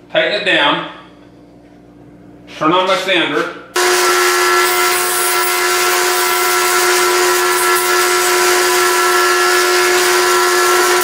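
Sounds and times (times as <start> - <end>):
disc sander whining: 3.8 - 11.0
wood being sanded: 3.8 - 11.0.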